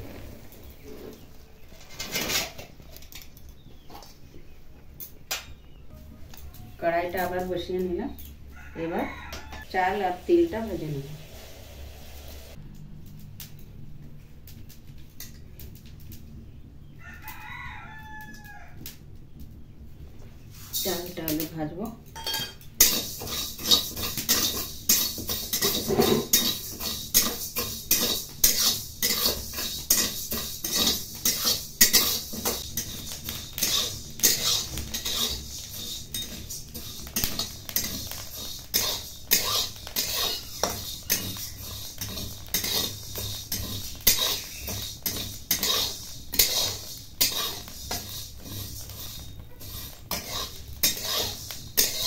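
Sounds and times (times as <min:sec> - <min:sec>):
metal spatula scraping rice in pan: 0:20.5 - 0:21.2, 0:22.3 - 0:52.0.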